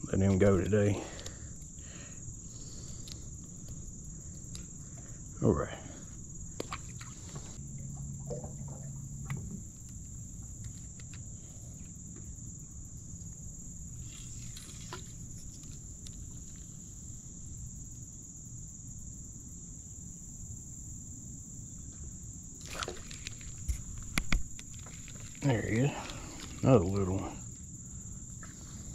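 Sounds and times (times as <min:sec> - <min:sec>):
low hum: 0:00.0 - 0:17.8
high-pitched insect chorus: 0:00.0 - 0:28.9.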